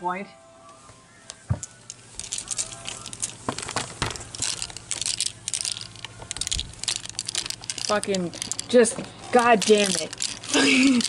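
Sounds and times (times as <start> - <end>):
hangers clicking and scraping: 1.6 - 11.0.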